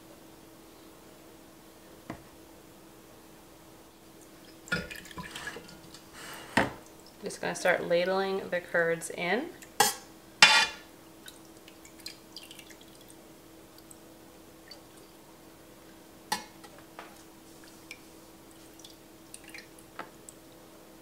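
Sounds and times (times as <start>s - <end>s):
wet curds dripping and splatting: 4.2s - 6.2s, 11.2s - 14.0s, 16.4s - 20.4s.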